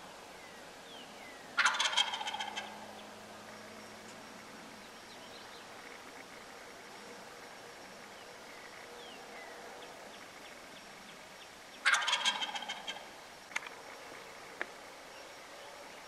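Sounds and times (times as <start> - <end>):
turkey gobbling: 1.6 - 2.8, 11.8 - 13.2.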